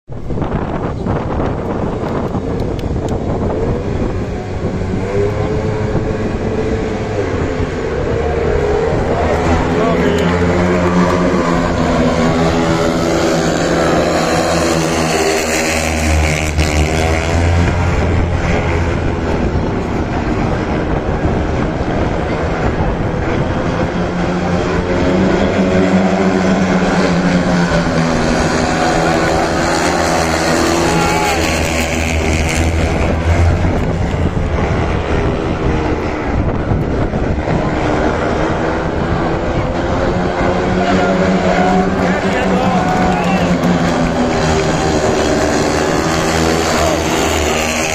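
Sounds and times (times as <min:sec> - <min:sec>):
motorcycle engines racing: 0:00.1 - 0:47.9.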